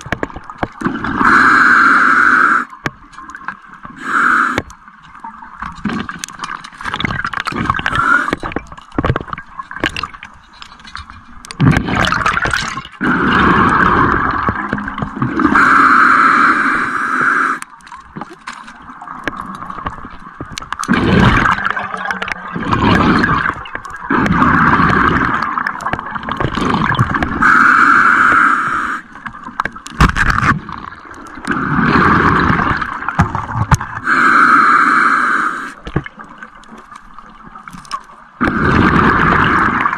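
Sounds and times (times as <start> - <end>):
gurgling exhaled bubbles: 0.0 - 17.9, 18.9 - 39.9
hissing regulator inhalations: 1.2 - 2.8, 4.0 - 4.7, 7.8 - 8.5, 15.4 - 17.7, 27.4 - 29.1, 34.0 - 35.8.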